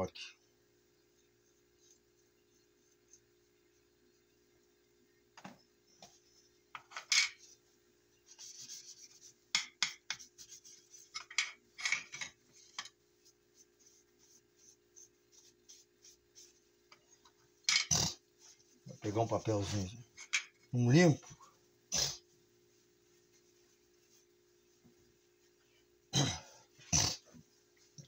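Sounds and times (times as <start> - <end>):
paper towel rubbing and rustling: 7.5 - 9.4, 10.2 - 11.2, 12.5 - 16.9, 22.2 - 25.6.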